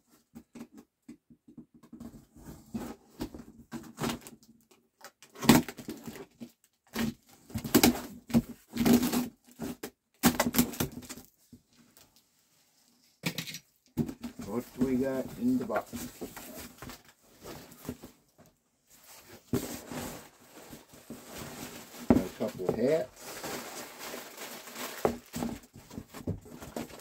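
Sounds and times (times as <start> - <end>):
cardboard box rustling and scraping: 14.3 - 18.2, 18.9 - 27.0.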